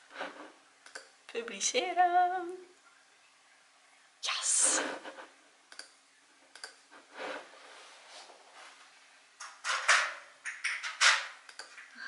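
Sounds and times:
computer mouse clicks: 0:00.8 - 0:01.1, 0:05.7 - 0:06.8, 0:11.5 - 0:11.9
rustling noise: 0:06.9 - 0:11.9.

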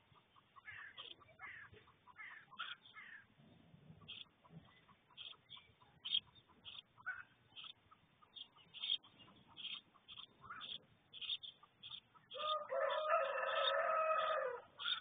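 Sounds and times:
small birds chirping: 0:00.0 - 0:15.0
rooster crowing: 0:12.4 - 0:14.7.

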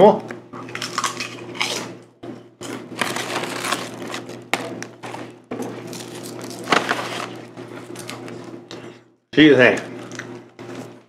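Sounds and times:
foil chip bag crinkling: 0:02.7 - 0:08.1.

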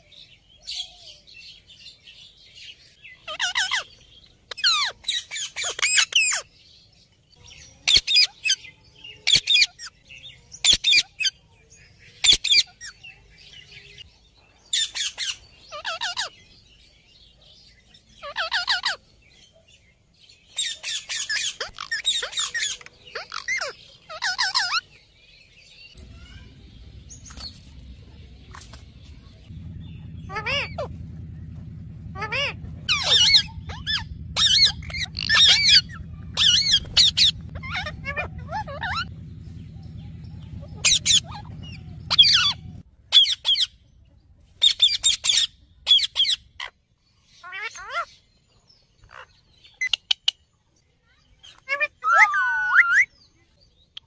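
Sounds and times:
parakeets calling: 0:02.6 - 0:06.8, 0:07.4 - 0:14.1, 0:14.7 - 0:16.6, 0:17.9 - 0:19.2, 0:20.4 - 0:25.0, 0:25.9 - 0:43.8, 0:44.6 - 0:48.2
low steady hum: 0:26.0 - 0:45.9.

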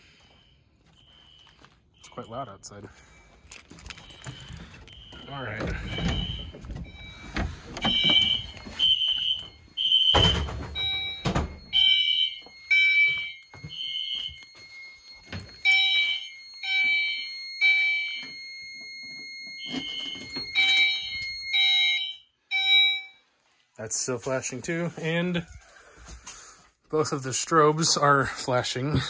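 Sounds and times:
steady high alarm tone: 0:00.0 - 0:23.4
fire alarm horn blasts: 0:00.2 - 0:23.2.

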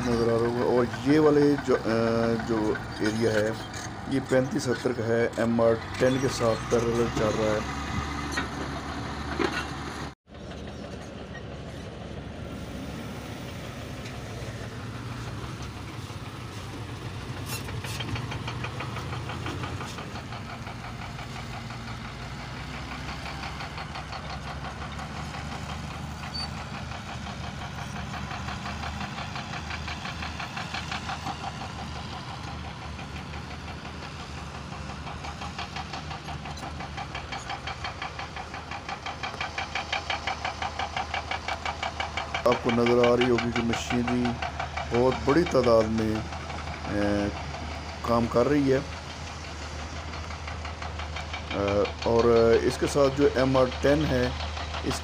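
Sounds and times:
diesel engines running: 0:00.0 - 0:55.0
rapid knocking clatter: 0:14.6 - 0:55.0.

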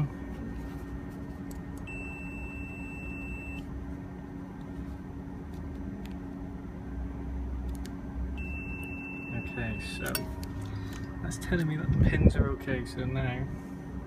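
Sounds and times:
steady low drone: 0:00.0 - 0:14.0
multimeter continuity beep: 0:01.8 - 0:03.7, 0:08.4 - 0:10.2.

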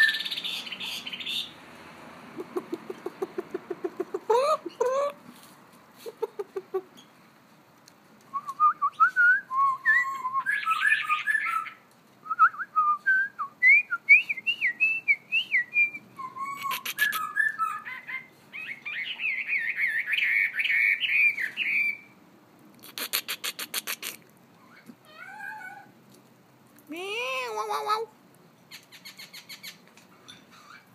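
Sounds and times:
bird singing whistled phrases: 0:00.0 - 0:01.5, 0:08.3 - 0:22.2.

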